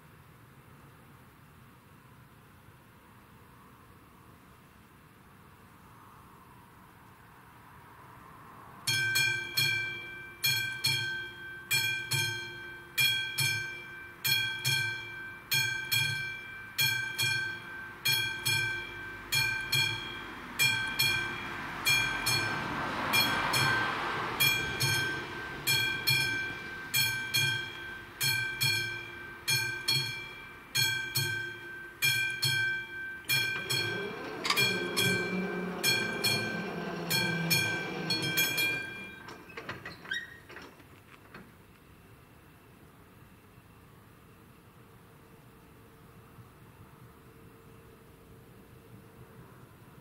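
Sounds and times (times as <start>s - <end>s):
level crossing bell ringing: 8.9s - 39.5s
rushing noise: 18.8s - 40.0s.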